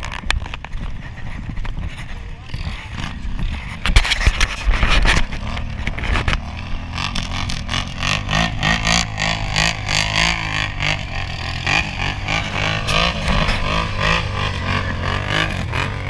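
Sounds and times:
atv engines revving: 0.0 - 16.0
rough knocks and rushing noise: 3.1 - 9.1.

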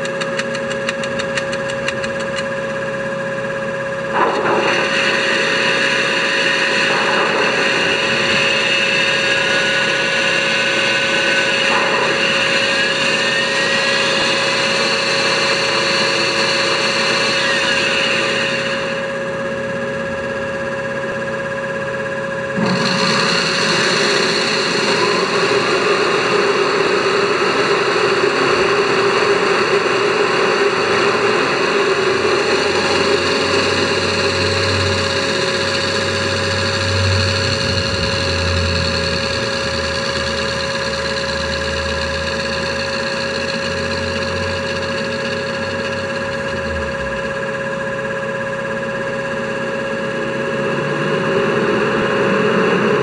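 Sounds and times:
blower whir with whine: 0.0 - 53.0
low rumble: 46.4 - 47.8.

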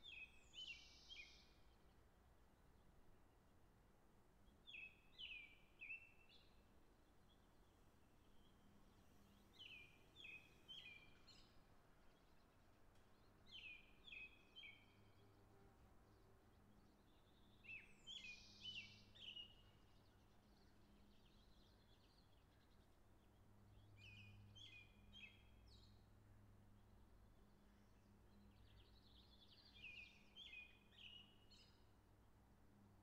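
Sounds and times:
bird chirping: 0.0 - 1.6, 4.6 - 15.2, 16.2 - 26.0, 27.9 - 31.8.

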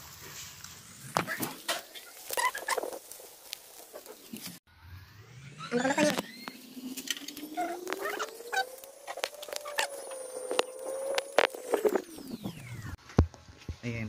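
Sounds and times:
faint rising tone: 4.7 - 13.0.

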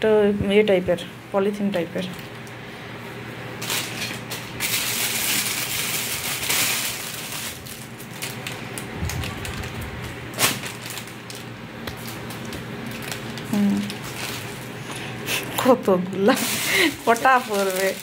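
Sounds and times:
sharp plastic crackle: 3.6 - 14.8, 15.8 - 18.0
plastic bag crinkling: 3.6 - 15.0, 16.2 - 18.0.

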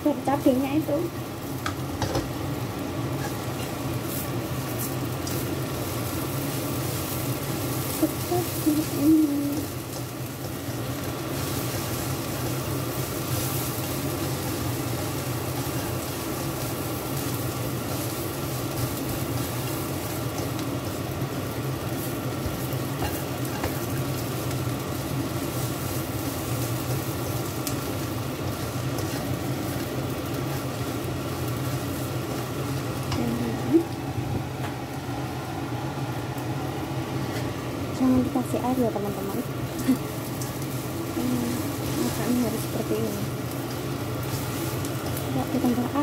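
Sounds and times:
food sizzling in a pan: 0.0 - 46.0
steady low hum: 0.0 - 46.0
spatula scraping a pan: 3.2 - 5.4, 23.0 - 23.8.

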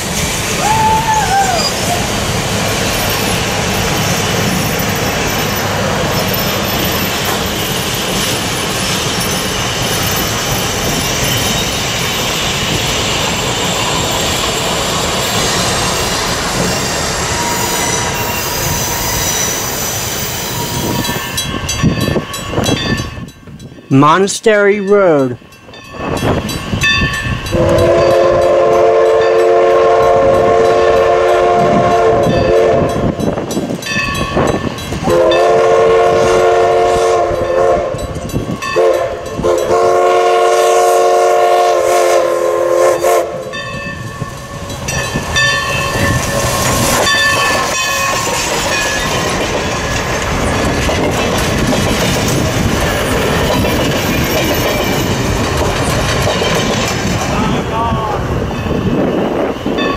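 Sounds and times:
train wheels clicking over rail joints: 0.0 - 23.8, 25.6 - 35.4, 43.4 - 57.6
steam whistle blasts: 0.6 - 2.1, 27.5 - 32.9, 35.0 - 38.0, 38.8 - 43.6.

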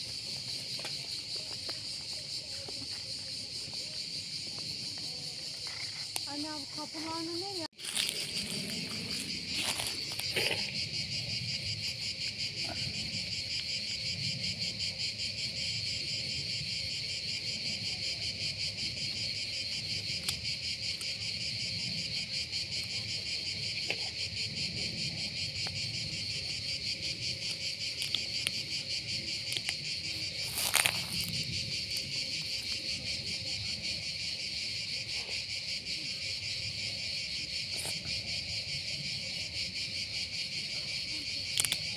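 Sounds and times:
insects chorus: 0.0 - 41.9.

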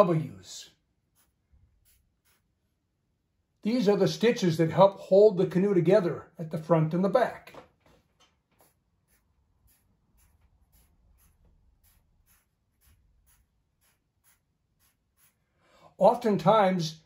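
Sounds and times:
pencil scratching on paper: 1.1 - 2.6, 8.6 - 15.5.

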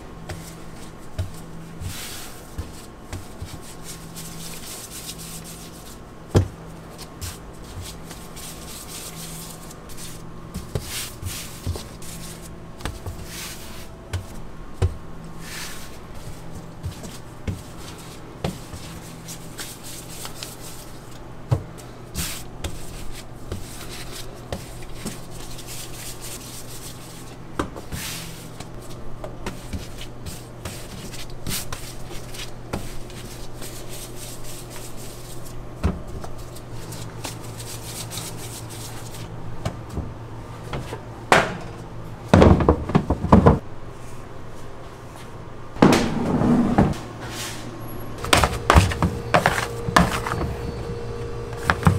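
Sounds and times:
low appliance hum: 0.0 - 51.9
hands handling dough: 47.3 - 51.9.

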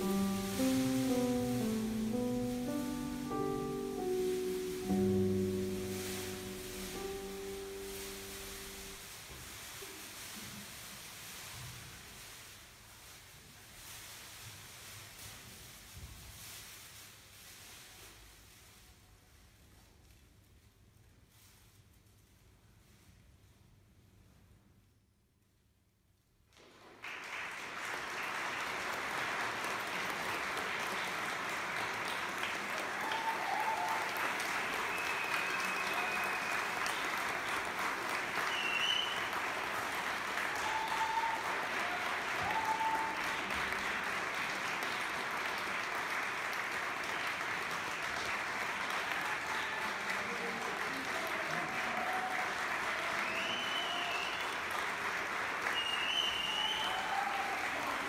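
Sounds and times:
audience applauding: 0.0 - 9.0, 26.6 - 58.0.

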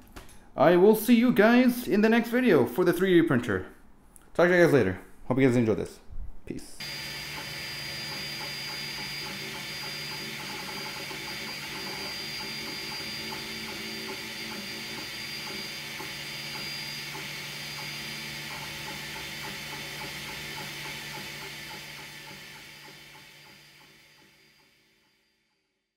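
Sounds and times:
printer fans and motors humming: 6.8 - 24.6.

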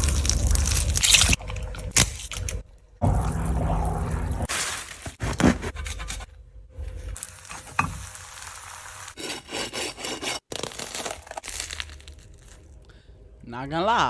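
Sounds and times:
sandwich frying in a pan: 7.2 - 9.2
knife sawing through toasted bread: 9.2 - 10.5.

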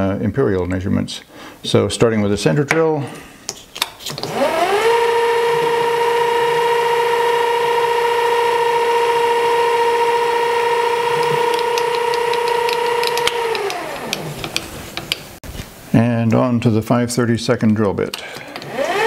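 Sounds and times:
lathe spindle whine: 4.3 - 14.6, 18.5 - 19.0.

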